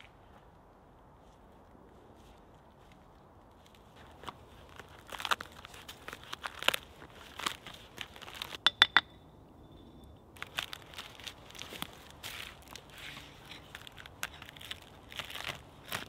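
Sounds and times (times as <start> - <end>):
bark crackling and tearing: 3.8 - 8.6, 10.4 - 16.0.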